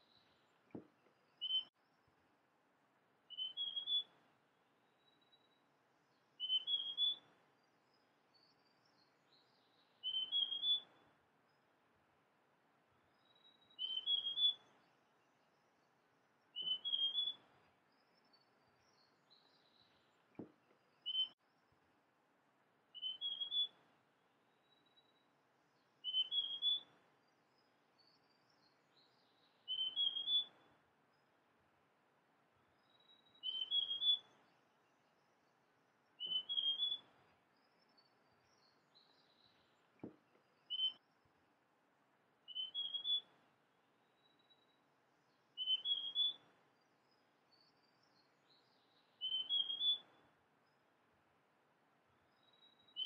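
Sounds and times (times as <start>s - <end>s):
faint high bird chirps: 0.0s - 2.1s, 3.3s - 11.7s, 13.0s - 22.0s, 22.9s - 31.5s, 32.6s - 41.6s, 42.4s - 51.1s, 52.0s - 53.0s
soft tap: 0.7s - 1.2s, 20.3s - 20.8s, 40.0s - 40.4s
bird whistling rising notes: 10.0s - 10.9s, 16.6s - 17.4s, 23.0s - 23.8s, 26.0s - 26.9s, 29.7s - 30.5s, 33.4s - 34.3s, 36.2s - 37.1s, 42.5s - 43.3s, 45.6s - 46.4s, 49.2s - 50.0s.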